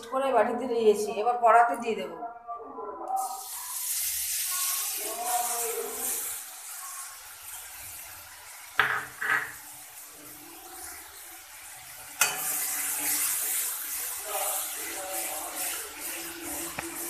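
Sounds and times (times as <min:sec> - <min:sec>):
spice paste sizzling in oil: 0:03.2 - 0:17.0
sharp knocks on pan: 0:08.8 - 0:09.6
spatula scraping a pan: 0:12.0 - 0:17.0.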